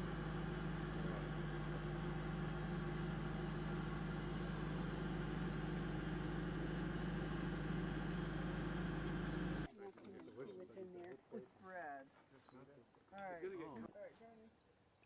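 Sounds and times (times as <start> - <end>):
engine humming: 0.0 - 9.7.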